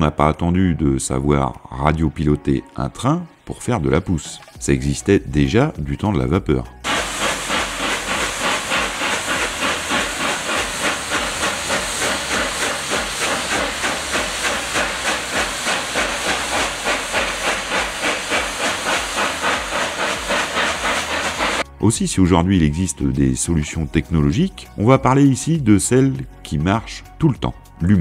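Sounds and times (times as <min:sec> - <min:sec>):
continuous steam hiss: 0:06.8 - 0:21.6
steam locomotive chuffing: 0:06.8 - 0:21.7.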